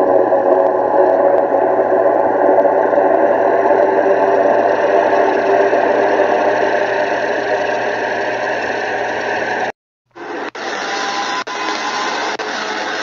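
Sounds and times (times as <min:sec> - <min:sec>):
distorted droning rumble: 0:00.0 - 0:09.7.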